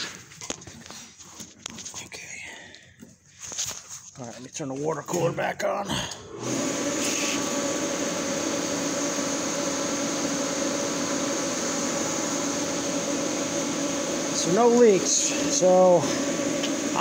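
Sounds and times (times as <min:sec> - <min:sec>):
water cooler humming and whining: 0:04.5 - 0:17.0.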